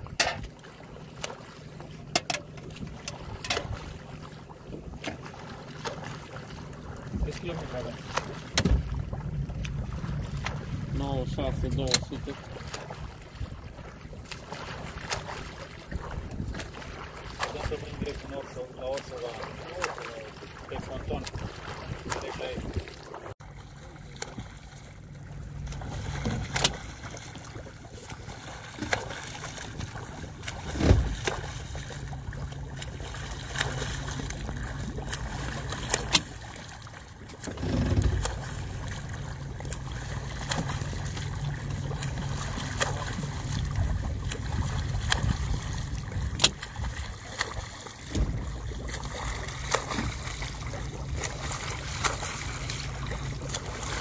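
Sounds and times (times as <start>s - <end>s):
boat motor running: 0.0s - 54.0s
water splashing: 0.0s - 54.0s
low thumps: 8.5s - 11.0s, 37.5s - 38.4s, 48.1s - 48.6s.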